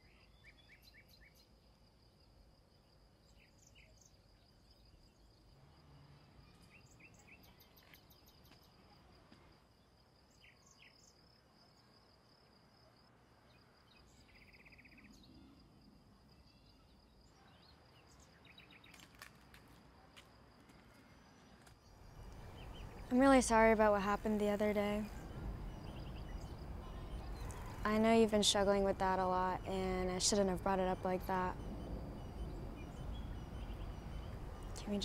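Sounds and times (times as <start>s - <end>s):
low background hum: 22.0s - 35.0s.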